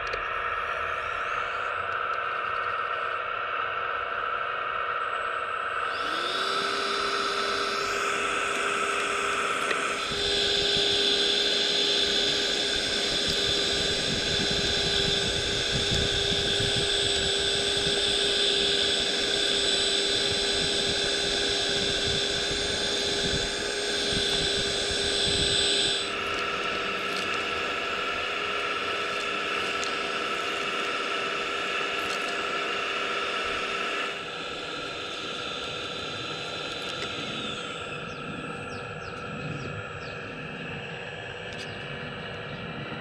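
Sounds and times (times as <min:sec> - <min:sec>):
small suction motor whine: 0:00.0 - 0:43.0
soil and grit rushing up nozzle: 0:05.9 - 0:38.0.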